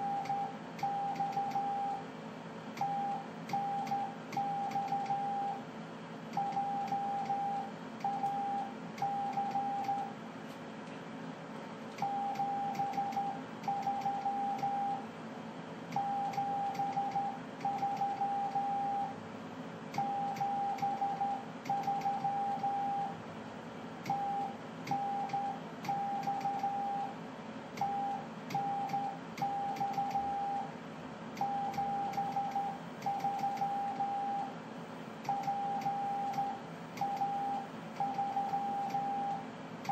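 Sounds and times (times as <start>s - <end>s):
morse code beeps: 0.0s - 2.0s, 2.8s - 5.6s, 6.4s - 10.1s, 12.0s - 15.0s, 16.0s - 19.1s, 20.0s - 23.1s, 24.1s - 27.1s, 27.8s - 30.7s, 31.4s - 34.5s, 35.3s - 39.9s
low equipment hum: 0.0s - 39.9s.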